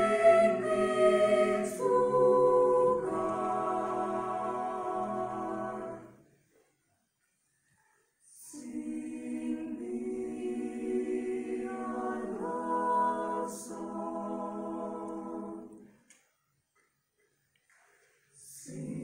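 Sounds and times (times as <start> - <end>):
mixed choir singing: 0.0 - 6.3, 8.3 - 16.0, 18.4 - 19.0.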